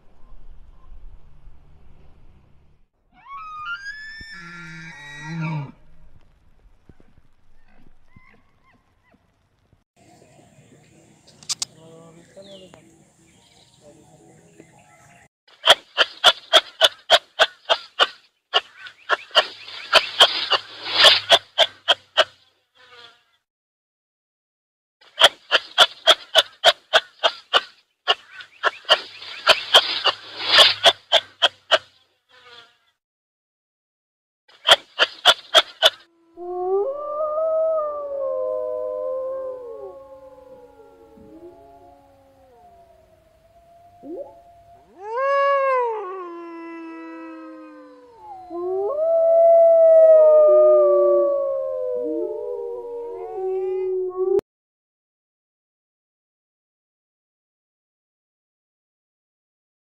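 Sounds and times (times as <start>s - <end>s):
kangaroo clucking: 15.6s - 22.4s, 25.1s - 31.9s, 34.6s - 36.1s
wolves howling: 36.3s - 54.4s.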